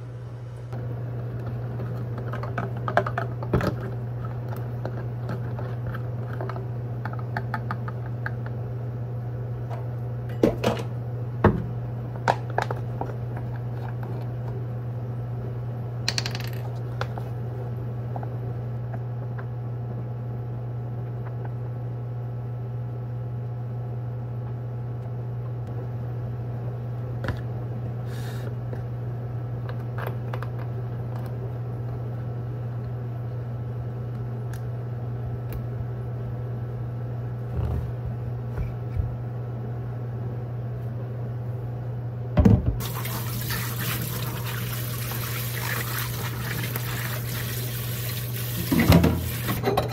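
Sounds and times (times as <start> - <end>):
appliance electric hum: 0.0 - 49.9
utensils and dishes clinking: 48.7 - 49.9.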